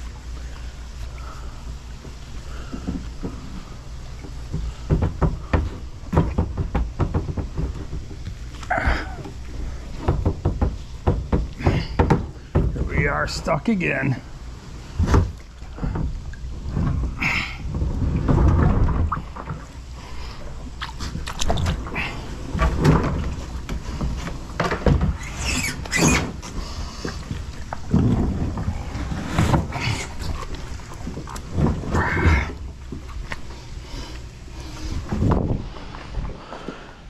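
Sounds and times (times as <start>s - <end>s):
kayak knocking against rocks: 4.2s - 8.4s, 9.2s - 13.2s
water splashing: 7.6s - 36.9s
microphone handling rumble: 26.3s - 33.9s, 34.6s - 36.9s.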